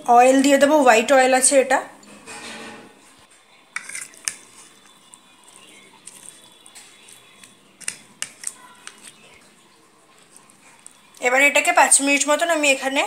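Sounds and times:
spoon clicking against bowl: 3.8 - 4.4, 7.8 - 9.1
wet squelching of mixed chicken: 3.8 - 11.4.

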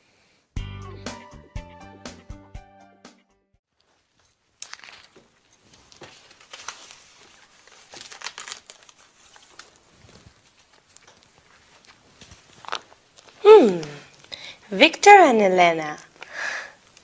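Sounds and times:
books handled on bookshelf: 3.8 - 13.4.

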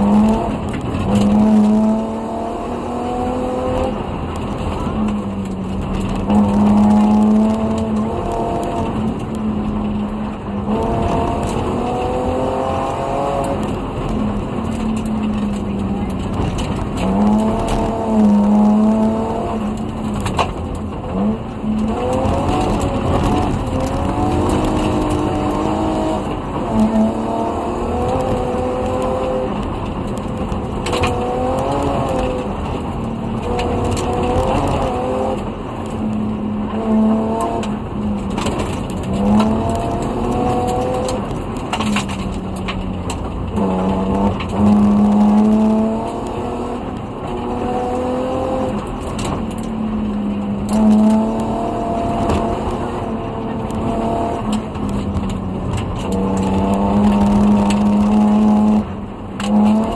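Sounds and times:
car engine revving through gears: 0.0 - 59.9
tyres rumbling on gravel: 0.0 - 59.9.

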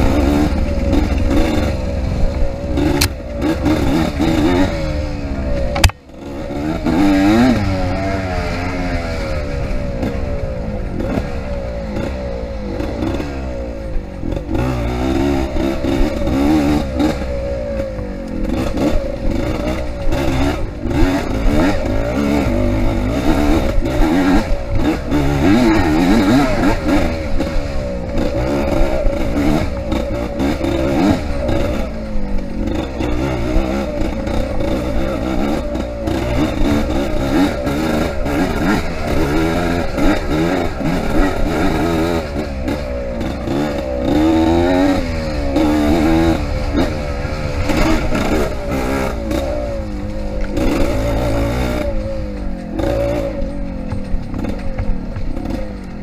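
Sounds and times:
dirt bike engine revving: 0.0 - 56.0
bike clattering over rough ground: 52.2 - 56.0.

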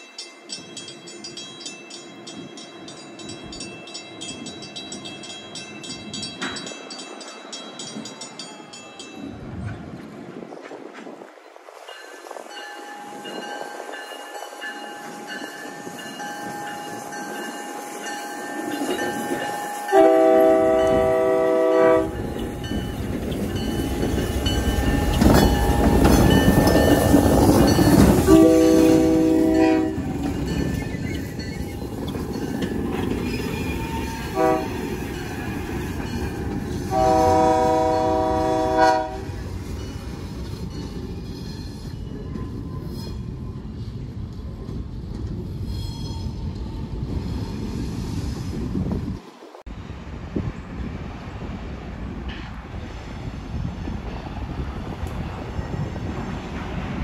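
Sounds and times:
locomotive horn: 16.5 - 22.4, 28.2 - 30.1, 33.7 - 34.8, 36.9 - 39.3.

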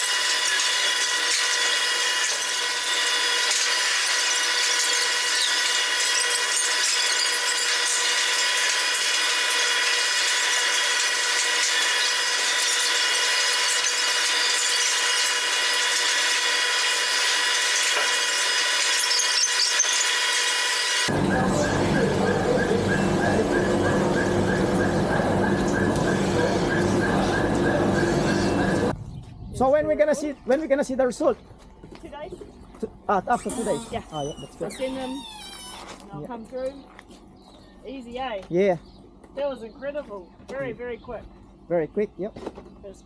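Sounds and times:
milking machinery whine: 0.0 - 28.9.

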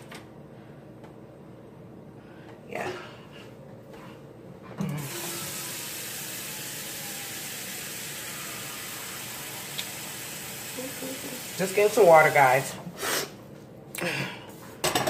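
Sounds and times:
tap water running: 4.9 - 12.8.

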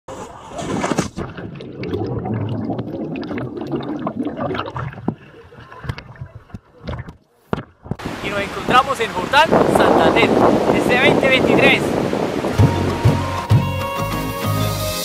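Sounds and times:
water splashes: 0.6 - 13.2
underwater gurgling and bubbling: 1.1 - 7.2.

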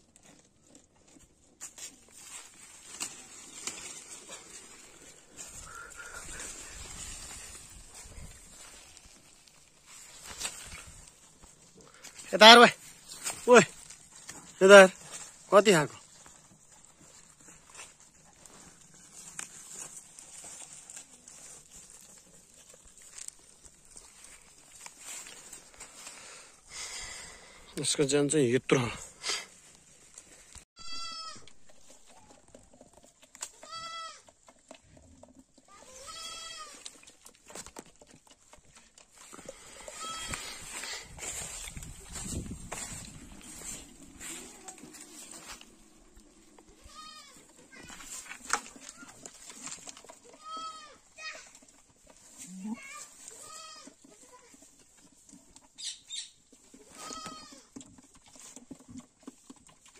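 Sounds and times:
goat bleating: 30.8 - 31.6, 33.4 - 34.3, 35.7 - 36.9, 39.6 - 40.7, 46.6 - 48.2, 50.2 - 51.5, 52.4 - 54.6, 56.9 - 57.7.

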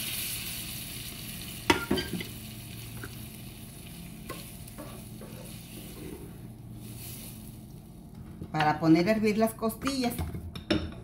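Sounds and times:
sauce sizzling in a frying pan: 0.0 - 8.0.

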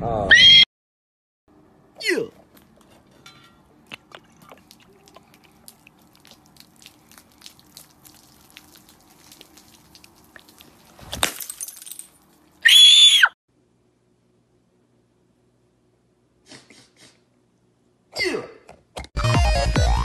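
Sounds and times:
high-pitched scream: 0.2 - 0.7, 12.6 - 13.4.

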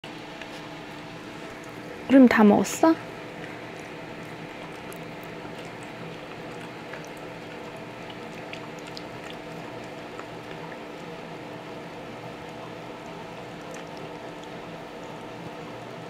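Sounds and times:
background hum and hiss: 0.0 - 16.0
wet clicks and smacks: 3.4 - 11.4, 12.4 - 14.6.

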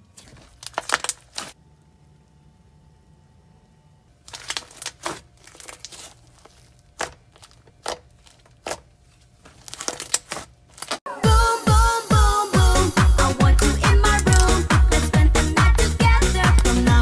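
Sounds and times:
slime crackling and popping: 0.1 - 1.6, 4.3 - 8.8, 9.6 - 11.0.

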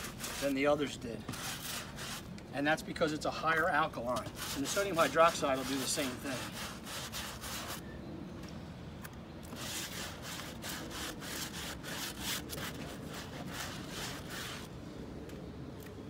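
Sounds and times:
brush scrubbing wet wood: 0.0 - 2.2, 4.0 - 7.8, 9.6 - 14.7.

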